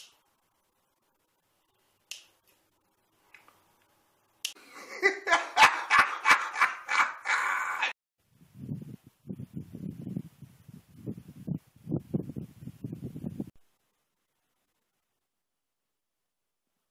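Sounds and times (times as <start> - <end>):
man laughing loudly: 4.6 - 8.0.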